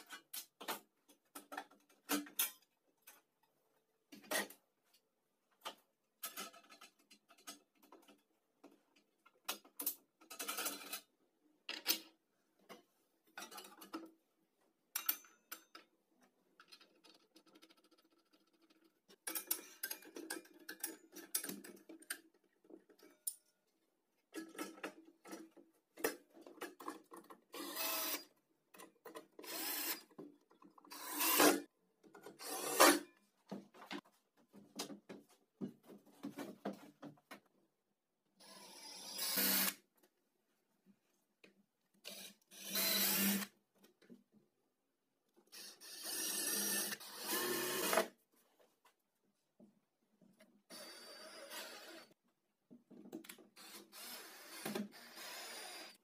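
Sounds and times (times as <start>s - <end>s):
saw parts clicking and knocking: 5.6s - 11.1s, 16.6s - 23.5s.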